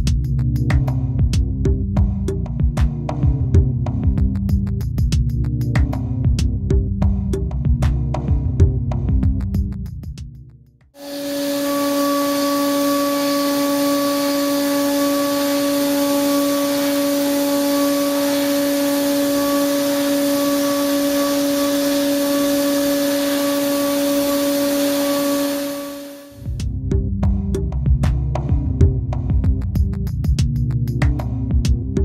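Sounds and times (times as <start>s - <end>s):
hiss of metal cutting: 11.0s - 26.4s
milling spindle whine: 11.0s - 26.4s.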